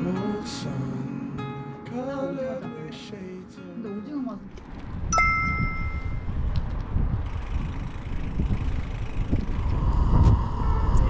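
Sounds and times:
loud uneven low rumble: 8.3s - 11.0s.

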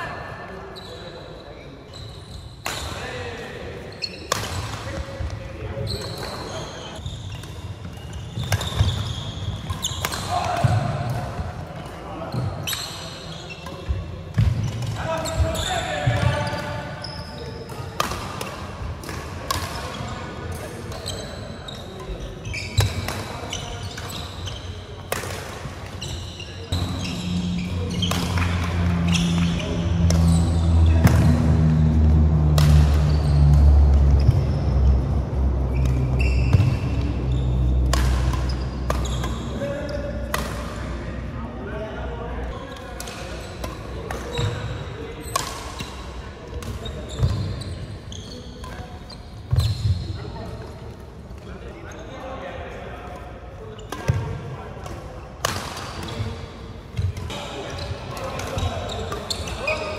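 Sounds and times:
shoes squeaking on court: 0.7s - 2.8s, 3.8s - 10.7s, 11.8s - 18.8s, 19.4s - 40.7s, 42.5s - 50.7s, 56.9s - 59.9s
rackets striking shuttlecock: 9.6s - 12.0s, 26.7s - 41.0s
shoes squeaking on wooden floor: 26.0s - 30.9s, 35.7s - 39.6s.

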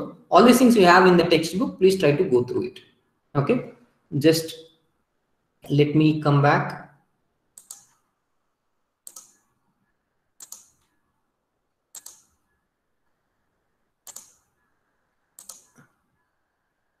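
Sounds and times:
computer mouse clicking: 7.5s - 8.0s, 9.0s - 9.5s, 10.4s - 11.0s, 11.9s - 12.5s, 14.0s - 14.6s, 15.3s - 16.0s.

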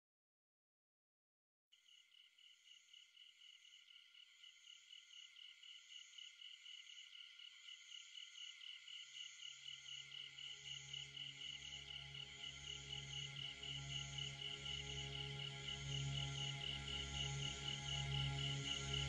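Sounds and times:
insect chirping: 1.8s - 14.3s
low musical drone: 11.2s - 19.0s.

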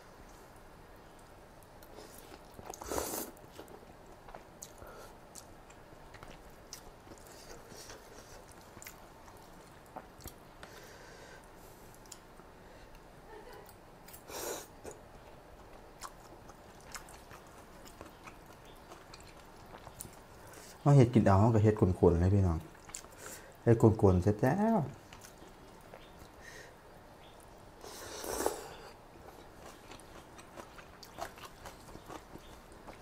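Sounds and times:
person chewing noodles: 1.6s - 10.9s, 14.0s - 20.8s, 22.6s - 23.6s, 25.1s - 26.4s, 27.3s - 33.0s.

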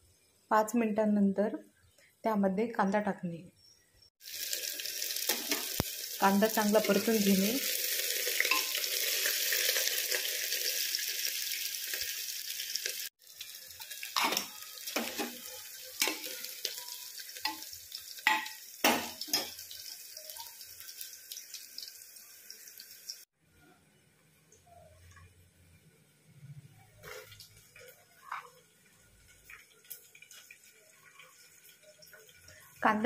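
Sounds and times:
onion sizzling in hot oil: 4.2s - 23.3s, 27.0s - 33.0s.

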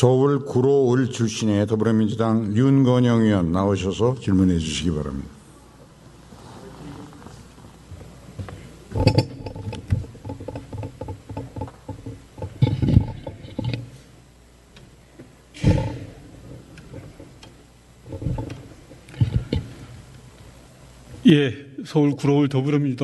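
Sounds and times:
microphone handling thumps: 15.6s - 17.3s.

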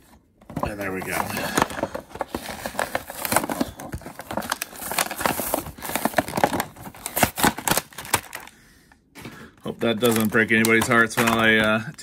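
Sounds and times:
cardboard tearing: 0.6s - 8.5s
plastic blister pack crinkling: 0.6s - 8.6s, 9.2s - 12.0s.

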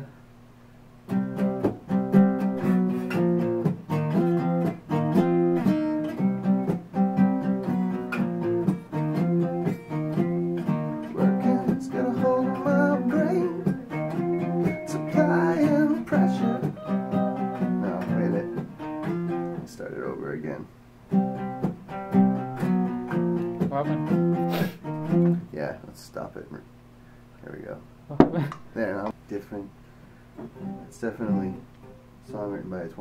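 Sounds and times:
acoustic guitar strumming chords: 1.1s - 20.5s, 21.1s - 25.5s, 30.4s - 32.0s.

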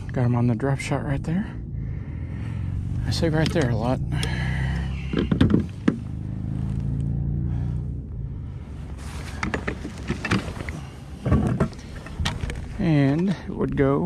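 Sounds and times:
knocks and clicks: 5.1s - 6.0s.

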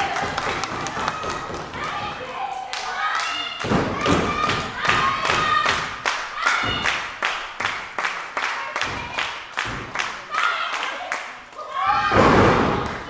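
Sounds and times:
audience clapping in unison: 0.0s - 3.5s, 4.4s - 11.6s.

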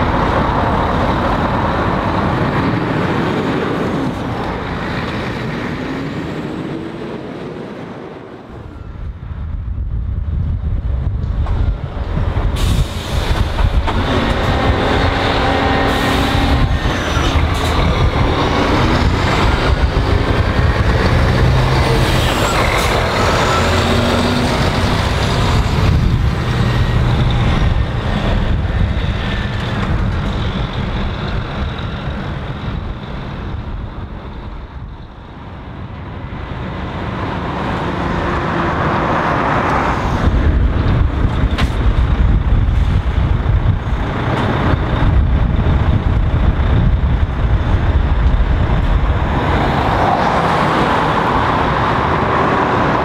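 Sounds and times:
second truck engine approaching: 8.5s - 53.0s
truck diesel engine accelerating: 11.6s - 53.0s
air brake hisses: 12.6s - 13.6s.

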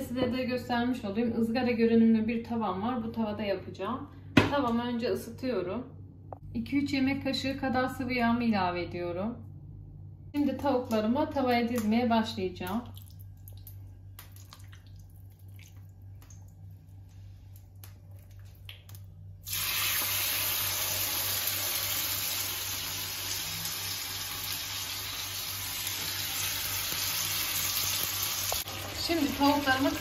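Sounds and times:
soft wet clicks of hands: 17.5s - 19.1s
meat frying sizzle: 18.8s - 30.0s.

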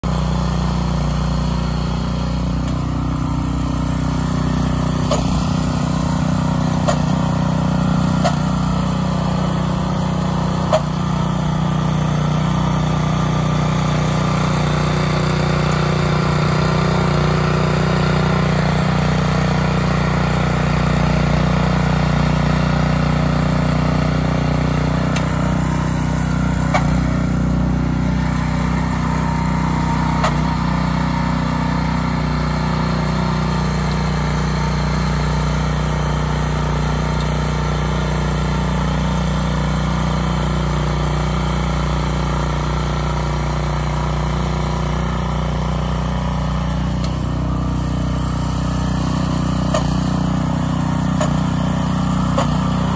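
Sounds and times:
garden tiller engine running: 0.0s - 52.9s.

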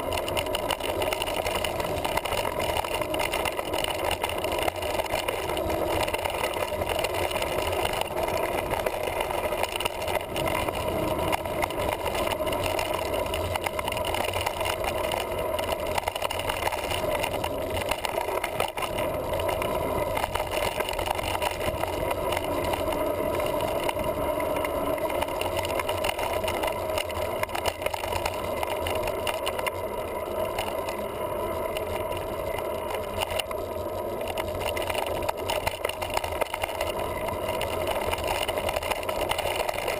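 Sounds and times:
bike rattling and knocking: 0.0s - 39.9s
bike tyre rumble: 0.0s - 39.9s.

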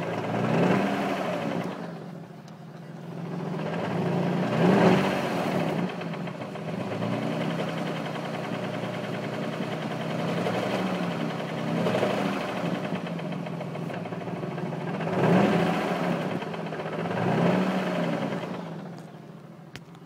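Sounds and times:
car engine revving: 0.0s - 19.3s
car engine idling: 0.0s - 20.0s.

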